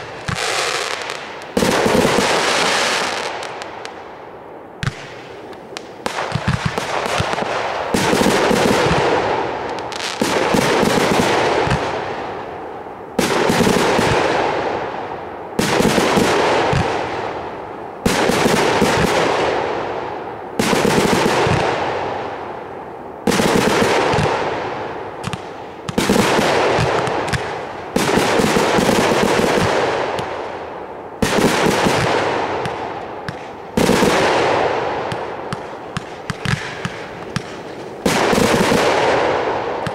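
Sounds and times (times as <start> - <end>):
fireworks bursting and crackling: 0.0 - 39.9.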